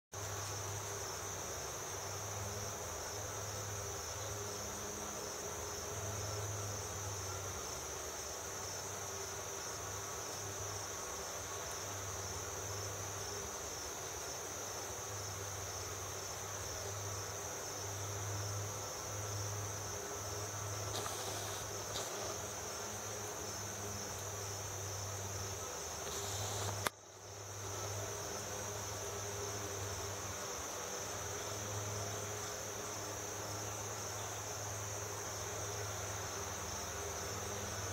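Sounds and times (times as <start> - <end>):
high-pitched insect chorus: 0.2 - 37.9
sharp click: 26.0 - 27.0.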